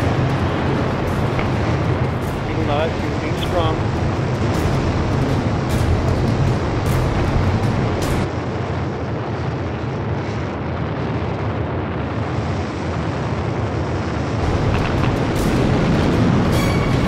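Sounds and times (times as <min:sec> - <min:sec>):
rocket thrusters firing: 0:00.0 - 0:08.3.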